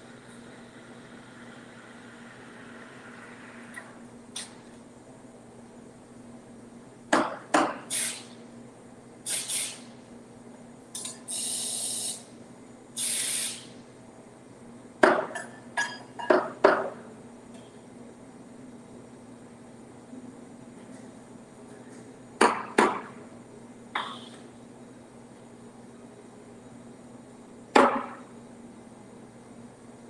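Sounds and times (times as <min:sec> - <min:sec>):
steam wand hissing: 0:07.9 - 0:08.2, 0:09.3 - 0:09.8, 0:11.3 - 0:12.2, 0:13.0 - 0:13.7.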